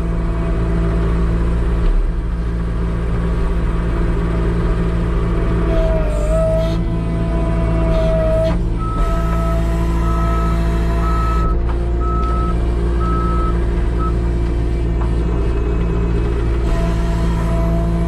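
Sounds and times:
skid steer engine running: 0.0 - 18.0.

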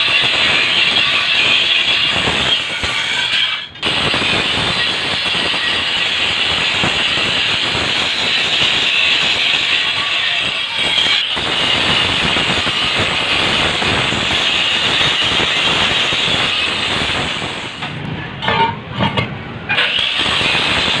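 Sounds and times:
angle grinder cutting steel: 0.0 - 21.0.

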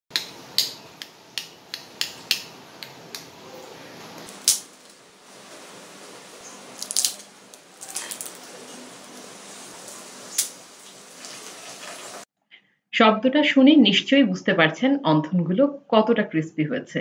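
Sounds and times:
fried wrappers crackling and snapping: 4.3 - 5.1, 6.6 - 9.0.

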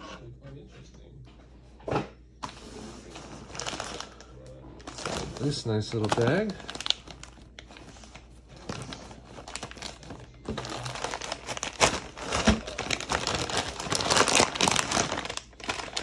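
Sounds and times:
plastic bag crinkling: 3.0 - 16.0.

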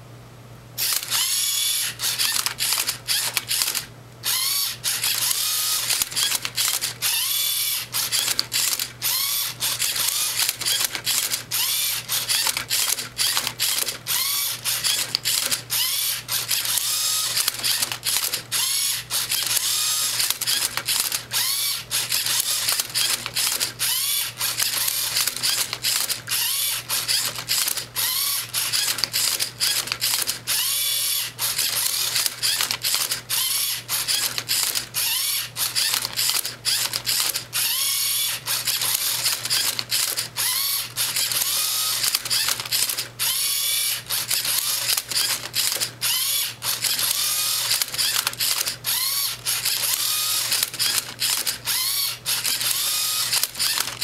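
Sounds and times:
servo motors whining: 0.8 - 54.0
clicks and clatter of plastic parts: 24.4 - 27.9, 31.6 - 35.0, 35.6 - 37.5, 41.0 - 43.2, 44.2 - 46.0, 46.7 - 48.9, 49.5 - 51.8, 52.4 - 54.0.

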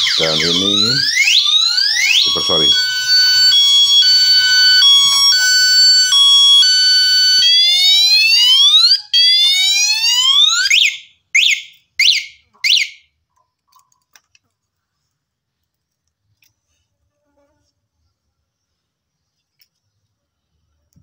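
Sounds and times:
alarm whoops: 0.0 - 10.8
alarm chirps: 0.0 - 13.0
bicycle alarm warbling: 0.0 - 13.1.

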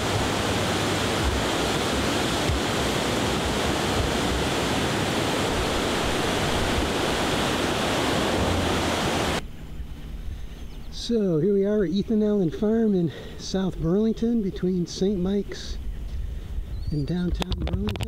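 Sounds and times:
river rushing water roar: 0.0 - 9.4.

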